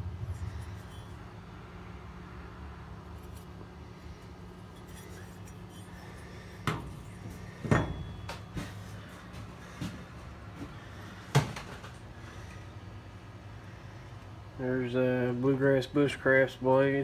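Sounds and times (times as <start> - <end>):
steady low hum: 0.0 - 17.0
steel tools clinking: 4.7 - 8.5.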